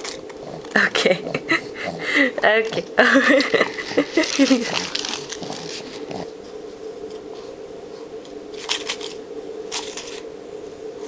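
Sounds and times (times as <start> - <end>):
faint steady hum: 0.0 - 11.0
paper rustling: 3.4 - 6.2, 8.6 - 10.2.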